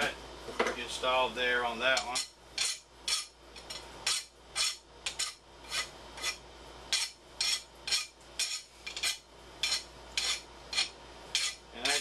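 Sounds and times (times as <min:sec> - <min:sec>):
hand file rasping on metal: 0:04.1 - 0:06.4, 0:07.0 - 0:12.0.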